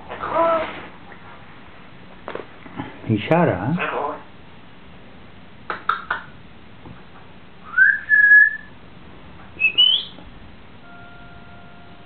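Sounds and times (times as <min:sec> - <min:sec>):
parrot whistling: 0:07.6 - 0:08.7, 0:09.6 - 0:10.2.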